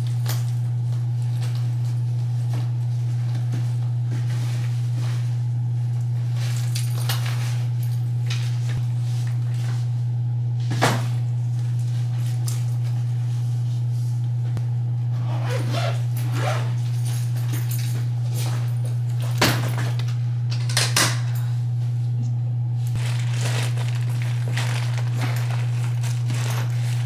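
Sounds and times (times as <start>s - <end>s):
rustling and clicking of packing: 0.0s - 5.3s, 15.3s - 20.0s, 22.9s - 27.0s
steady low hum: 0.0s - 27.0s.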